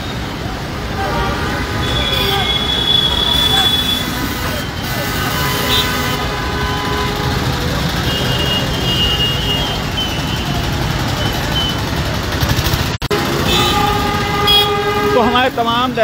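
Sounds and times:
traffic on wet road: 0.0 - 16.0
motorcycle engine: 5.0 - 15.4.

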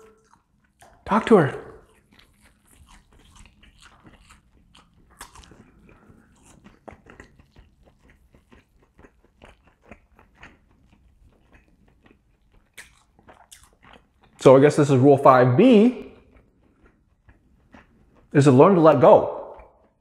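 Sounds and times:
person chewing food: 0.0 - 14.5, 16.0 - 18.4, 19.3 - 20.0
wet mouth clicks and smacks: 3.0 - 14.4, 19.4 - 20.0.

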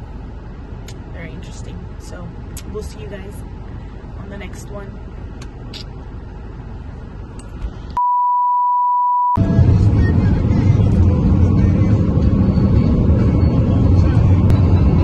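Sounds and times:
low rumbling background noise: 0.0 - 8.0, 9.4 - 15.0
steady beep tone: 8.0 - 9.4.

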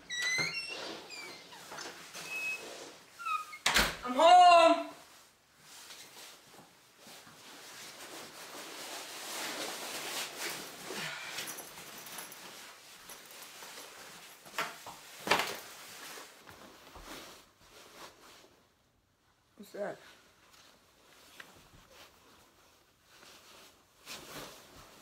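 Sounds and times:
coat and backpack rustling: 5.5 - 18.6.

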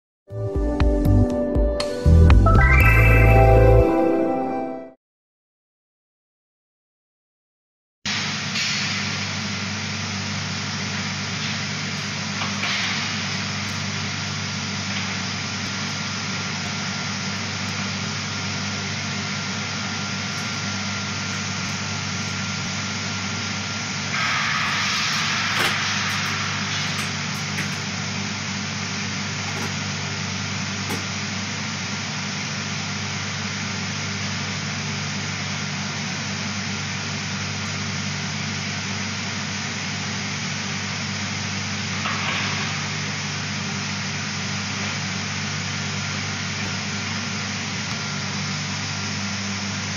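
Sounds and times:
shot blasting machine rushing: 8.1 - 33.2
low machine hum: 8.1 - 49.9.

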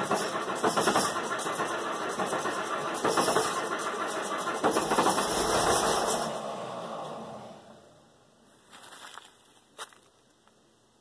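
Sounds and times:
diesel engine running: 0.0 - 8.5.

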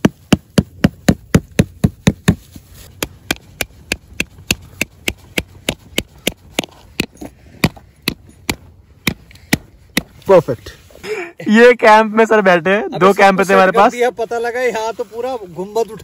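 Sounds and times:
stone striking metal tent peg: 3.0 - 10.2.

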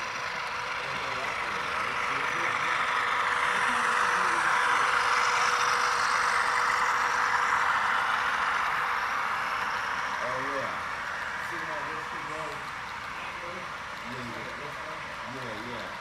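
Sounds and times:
model locomotive hum and hiss: 0.0 - 16.0.

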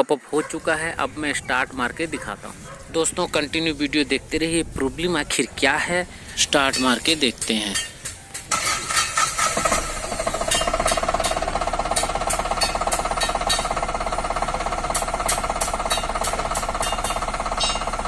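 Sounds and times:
diesel engine starting and idling: 0.4 - 7.7, 8.4 - 18.0
sharp ticks: 10.2 - 18.0.

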